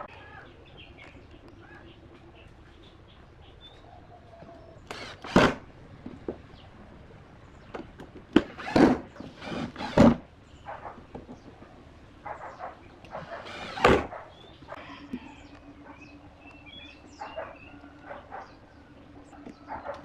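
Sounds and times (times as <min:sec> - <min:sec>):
impact driver driving screws: 0:04.9 - 0:05.6, 0:08.4 - 0:10.2, 0:13.4 - 0:14.1.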